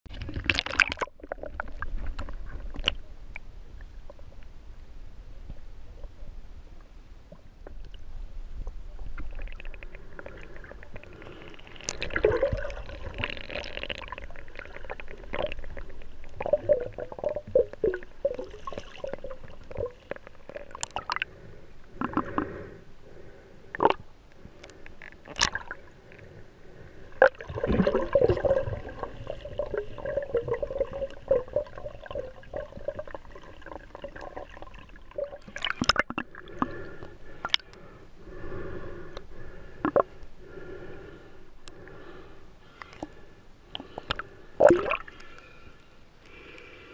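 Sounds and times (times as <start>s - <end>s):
underwater gurgling: 0.1s - 4.5s, 7.3s - 22.7s, 23.7s - 26.4s, 27.0s - 38.8s, 39.7s - 40.9s, 43.7s - 45.6s.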